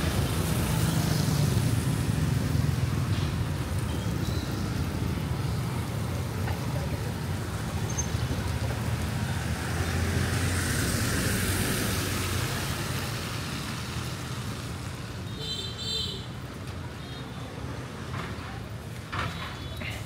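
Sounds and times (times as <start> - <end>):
motorbike passing close: 0.0 - 15.0
tyres hissing on wet road: 0.0 - 16.9
low engine hum of traffic: 0.0 - 20.0.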